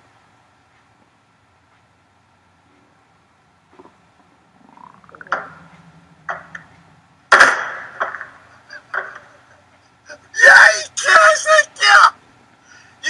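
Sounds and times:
faint low drone: 3.8s - 7.3s
short rising whine: 4.5s - 7.3s
sharp knocks: 5.0s - 6.7s, 7.3s - 9.3s
loud sudden crash: 7.3s - 8.4s.

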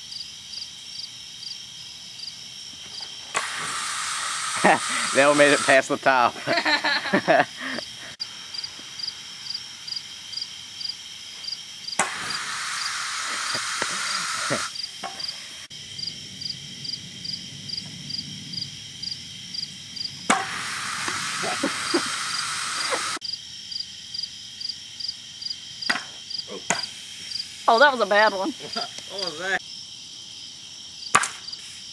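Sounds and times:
crickets chirping: 0.0s - 31.9s
long hisses: 3.2s - 23.2s, 26.5s - 29.6s, 31.5s - 31.9s
sharp knocks: 25.9s - 26.9s, 31.1s - 31.4s.

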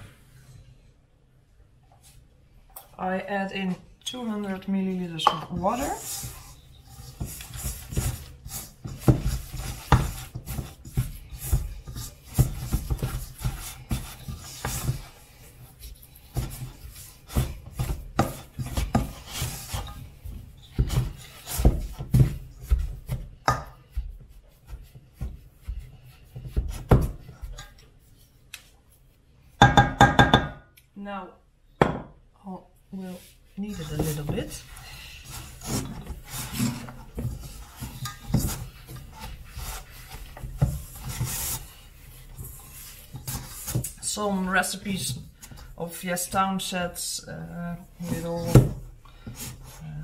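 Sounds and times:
wooden spoon stirring dough in bowl: 1.8s - 30.6s, 32.8s - 50.0s.

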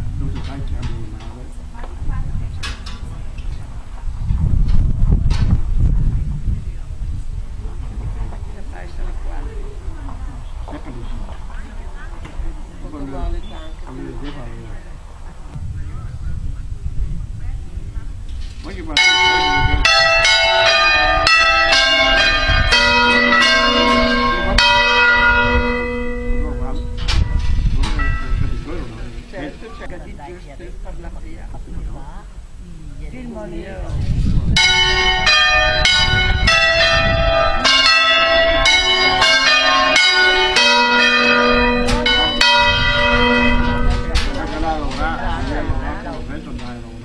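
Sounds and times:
church bells ringing: 18.8s - 29.8s, 34.6s - 47.0s
deep low bell: 18.8s - 29.9s, 33.7s - 47.0s.

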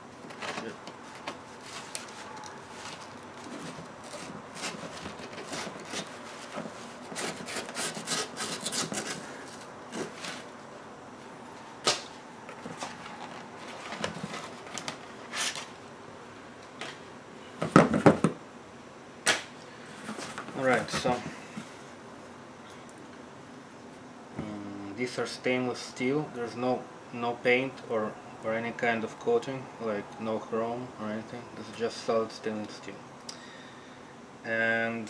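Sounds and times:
paper rustling and scraping: 0.2s - 10.6s, 12.5s - 15.8s
knife slitting paper envelope: 0.4s - 9.3s.

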